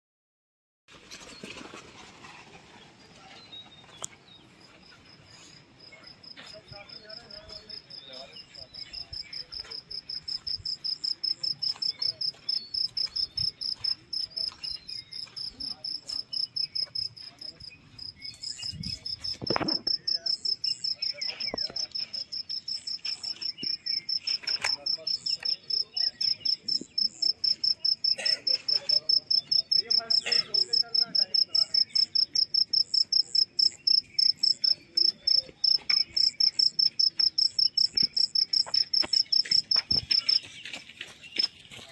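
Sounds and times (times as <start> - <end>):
cricket chirping: 4.6 - 40.4.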